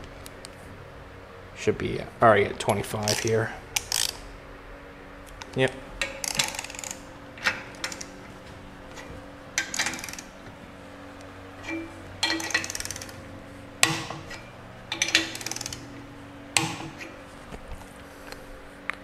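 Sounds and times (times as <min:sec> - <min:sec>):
torque wrench ratchet clicking: 0:03.0 - 0:04.2, 0:05.4 - 0:08.2, 0:09.6 - 0:10.3, 0:12.2 - 0:13.2, 0:13.8 - 0:15.9.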